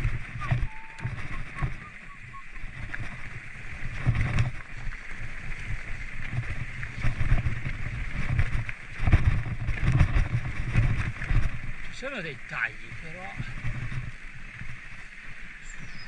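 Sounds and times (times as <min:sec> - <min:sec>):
bike rattling and clicking: 0:00.0 - 0:12.0, 0:13.4 - 0:15.0
tyres and wind rumble: 0:00.0 - 0:16.0.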